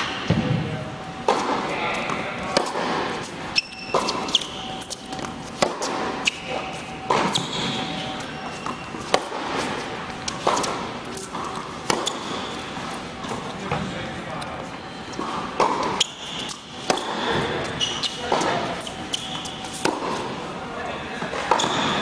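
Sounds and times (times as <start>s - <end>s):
tennis balls struck by rackets: 1.2s - 12.6s, 15.2s - 20.4s
tennis balls bouncing on court: 1.2s - 13.9s, 15.2s - 20.4s.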